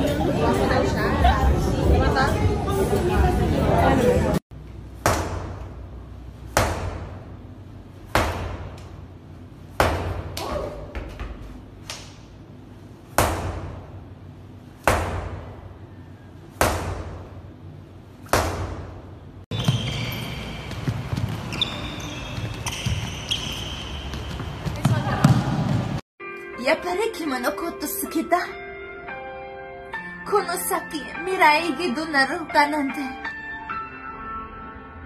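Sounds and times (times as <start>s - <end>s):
medicine ball thudding on wall: 8.1s - 8.9s, 9.7s - 11.4s, 14.8s - 15.6s.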